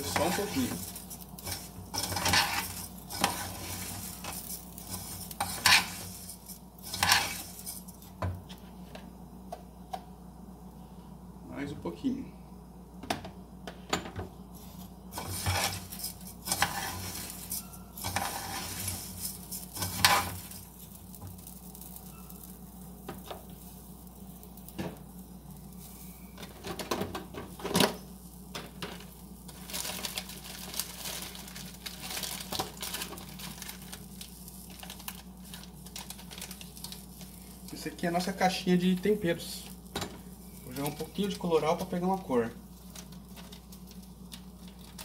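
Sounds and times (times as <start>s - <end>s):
rice sizzling in a pot: 0.0s - 9.3s, 14.5s - 45.0s
metal spoon scraping a pot: 1.4s - 7.9s, 15.2s - 20.4s.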